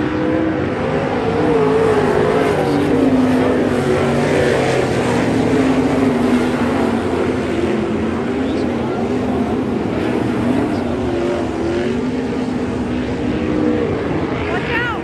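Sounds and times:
race car engines: 0:00.0 - 0:15.0.

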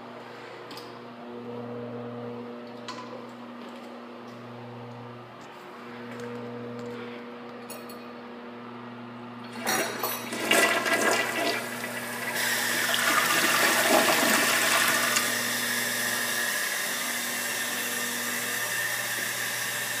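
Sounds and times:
toilet flushing: 0:09.5 - 0:17.6
toilet tank refilling hiss: 0:10.3 - 0:15.5.

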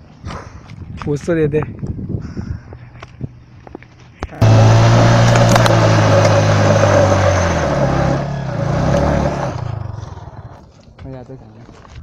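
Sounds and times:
motorcycle engine revving: 0:04.4 - 0:10.7.

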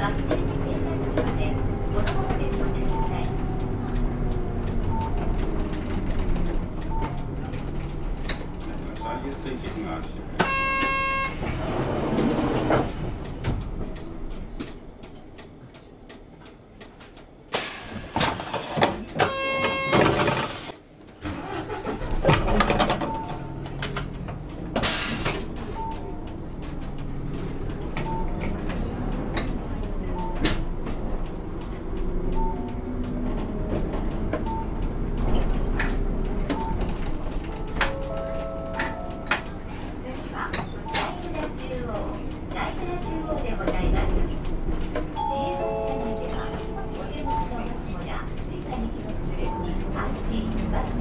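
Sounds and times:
bus engine hum: 0:00.0 - 0:51.0
soft repeating beep: 0:01.7 - 0:05.4, 0:06.8 - 0:07.4, 0:10.4 - 0:11.4, 0:23.1 - 0:23.6, 0:25.7 - 0:26.2, 0:28.0 - 0:28.5, 0:30.1 - 0:30.5, 0:32.3 - 0:32.8, 0:34.4 - 0:34.8, 0:36.5 - 0:36.9, 0:45.1 - 0:48.0, 0:49.4 - 0:49.8
air hiss bursts: 0:17.5 - 0:18.8, 0:24.8 - 0:25.3
pitched chime: 0:45.2 - 0:47.2.

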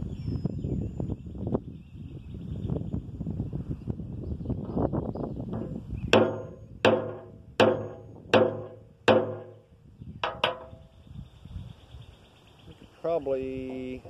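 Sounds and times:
hammer knocking on wooden rod: 0:05.6 - 0:09.6, 0:10.2 - 0:10.8.

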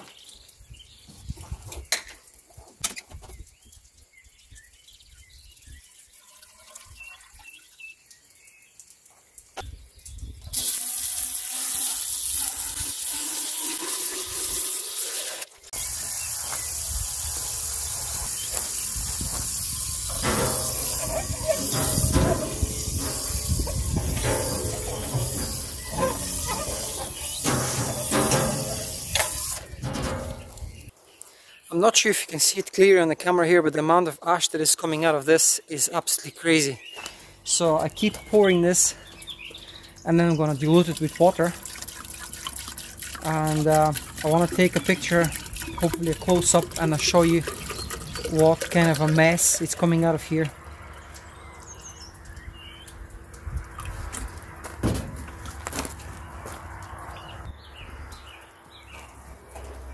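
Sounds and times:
hose nozzle spray hiss: 0:14.1 - 0:30.7
water splashing in a tub: 0:18.5 - 0:30.7, 0:40.2 - 0:50.6.

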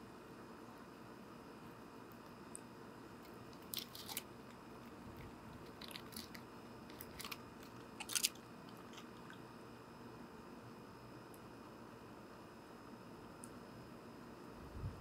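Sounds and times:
squirrel cracking and chewing seeds: 0:02.1 - 0:09.5.

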